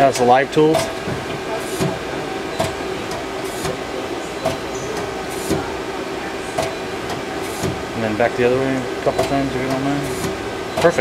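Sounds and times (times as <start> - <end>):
lathe turret clunking: 0.0 - 11.0
machine humming: 0.0 - 11.0.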